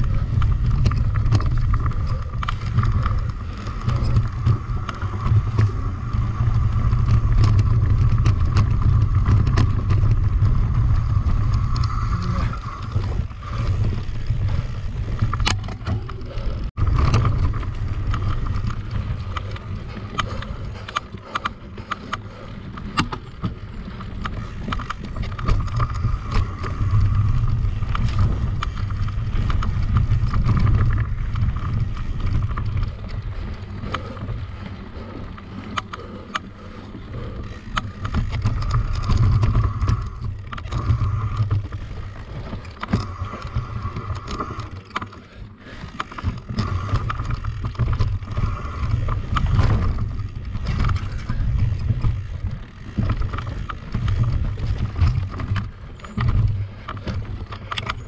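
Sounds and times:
bike rattling and clicking: 0.0s - 58.0s
wind rumbling on microphone: 0.0s - 58.0s.

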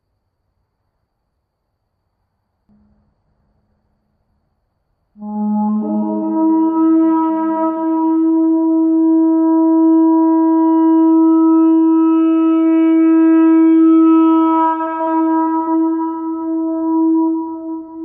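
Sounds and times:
shofar blast: 5.2s - 18.0s.

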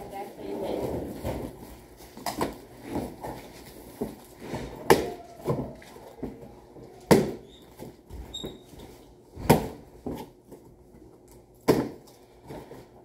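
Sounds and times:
rustling and handling noises: 0.0s - 13.0s
sharp cracks of cardboard: 11.6s - 12.1s.

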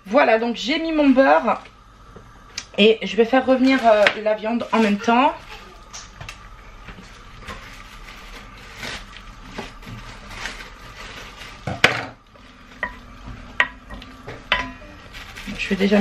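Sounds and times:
kitchen utensils clicking and knocking: 13.6s - 14.9s.

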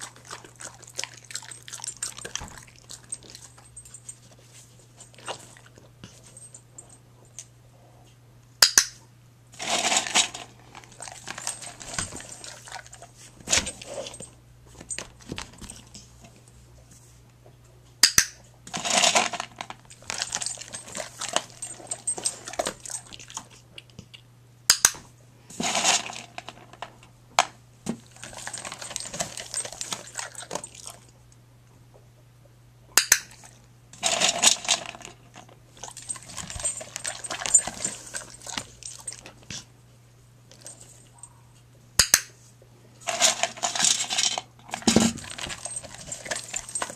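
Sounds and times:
dog chewing: 0.0s - 5.9s, 10.8s - 13.2s, 19.9s - 23.9s, 28.0s - 31.1s, 35.4s - 39.7s.

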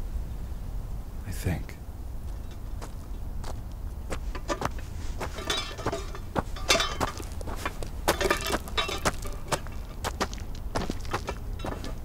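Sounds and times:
steady low rumble: 0.0s - 12.0s
sharp clicks and clinks: 4.4s - 9.8s.

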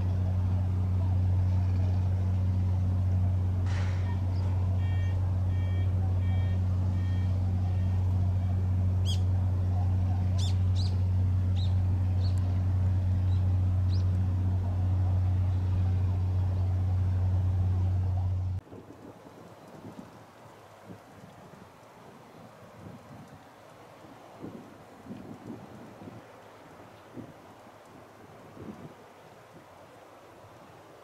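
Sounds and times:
helicopter engine and rotors droning: 0.0s - 18.6s
short electronic beeps: 4.8s - 8.0s.

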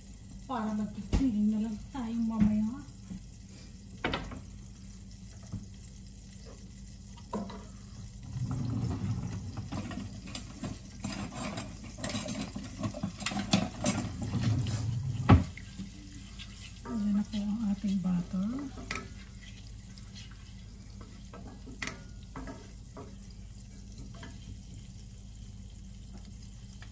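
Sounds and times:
wooden spoon scraping frying pan: 8.4s - 24.9s.

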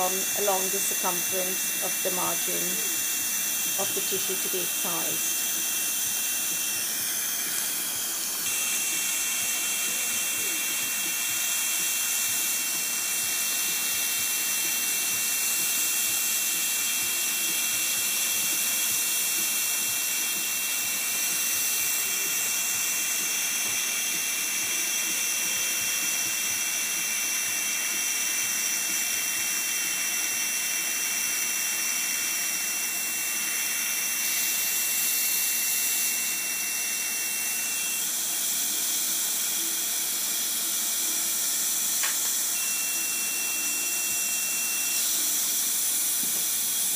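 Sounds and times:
high-pitched laser tone: 42.5s - 45.0s.

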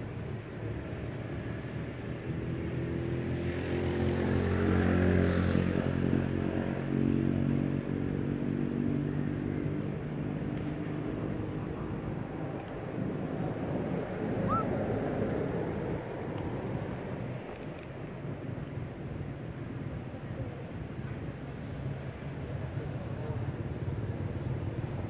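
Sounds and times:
vehicle engine passing by: 2.4s - 12.2s.

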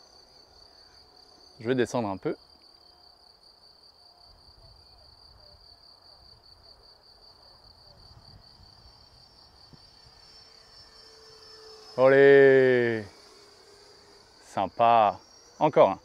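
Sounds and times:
crickets trilling: 0.0s - 16.0s
wind rumble on microphone: 7.7s - 10.2s.

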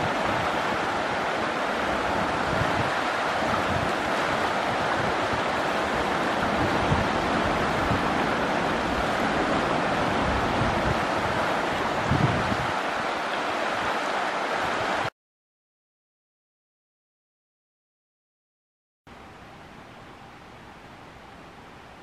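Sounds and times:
river water rushing over rocks: 0.0s - 15.1s.

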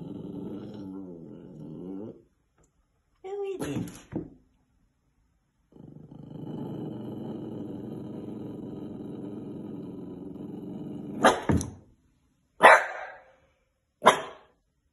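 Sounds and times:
puppy growling: 0.0s - 2.4s, 5.7s - 11.6s
puppy barking: 11.2s - 11.5s, 12.6s - 13.3s, 14.0s - 14.5s.

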